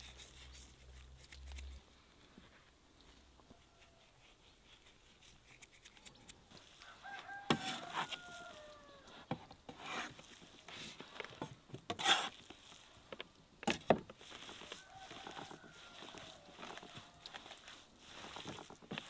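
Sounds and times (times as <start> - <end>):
rooster crowing: 6.8 - 9.2, 14.6 - 17.8
chickens calling: 14.4 - 17.7.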